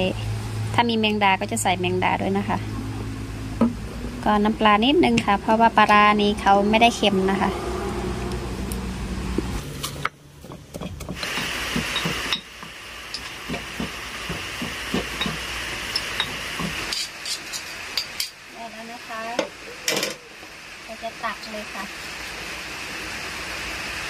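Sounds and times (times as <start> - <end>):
pestle pounding in stone mortar: 9.8 - 17.1
spoon clinking against mortar: 10.8 - 13.6, 14.3 - 18.3.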